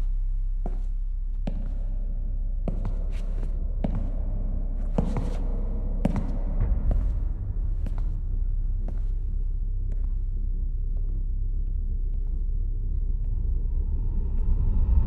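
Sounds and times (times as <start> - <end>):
steady low hum: 0.0 - 15.0
dress shoe footsteps on tiles: 0.6 - 2.0, 2.6 - 8.2, 8.8 - 9.2.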